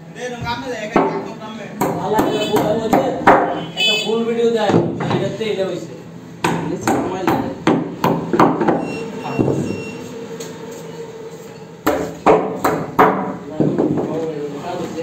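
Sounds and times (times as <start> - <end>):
hammer knocking on wooden plank: 1.0 - 3.6, 6.4 - 8.8, 11.8 - 14.2.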